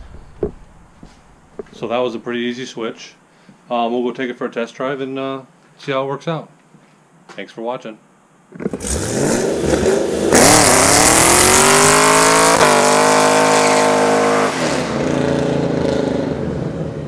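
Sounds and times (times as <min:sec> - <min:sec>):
car engine revving hard: 0:08.7 - 0:17.0.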